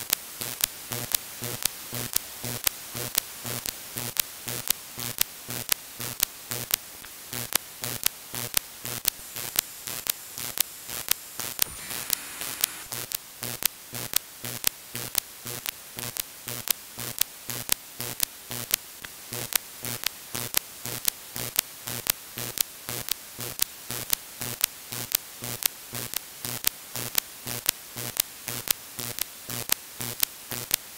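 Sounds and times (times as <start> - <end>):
interference clicks with buzz: 0.1 - 30.9
radio static hiss: 8.4 - 13.1.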